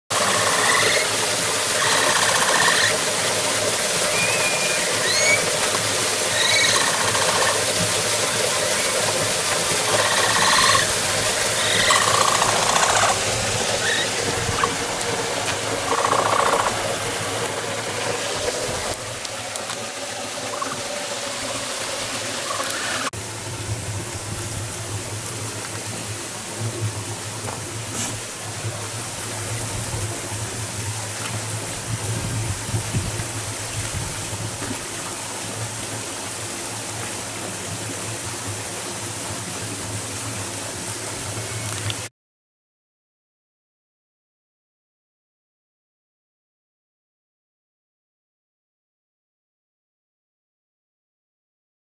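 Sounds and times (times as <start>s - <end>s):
capybara squeaking: 6.4s - 7.5s, 9.9s - 10.9s, 11.6s - 13.2s, 15.9s - 16.8s.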